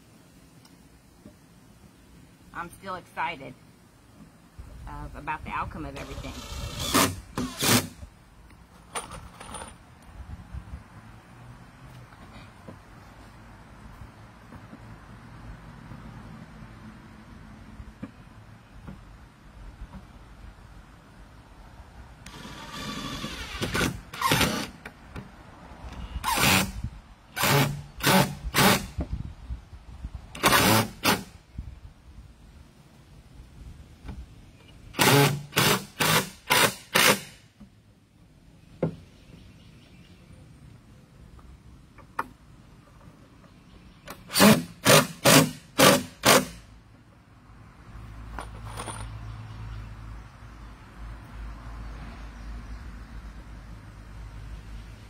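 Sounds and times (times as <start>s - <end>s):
cordless drill driving screws: 6.0s - 8.0s, 22.2s - 24.7s.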